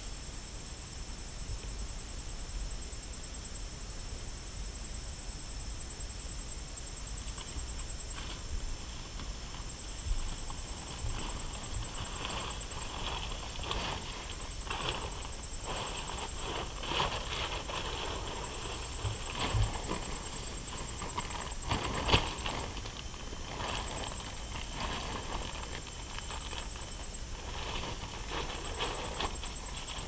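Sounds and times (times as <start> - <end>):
insect trill: 0.0 - 30.0
tent flysheet rustling and flapping: 7.3 - 30.0
footsteps on grass: 9.1 - 30.0.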